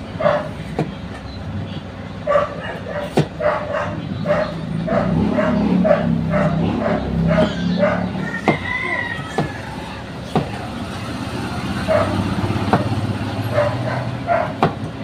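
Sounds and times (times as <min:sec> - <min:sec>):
dog barking: 0:00.2 - 0:00.6, 0:02.2 - 0:08.4, 0:11.8 - 0:12.5, 0:13.4 - 0:14.8.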